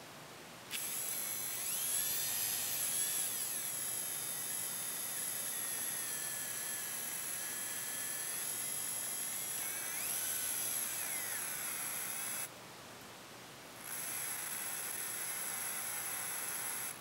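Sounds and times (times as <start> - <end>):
motor whining: 0.7 - 12.5.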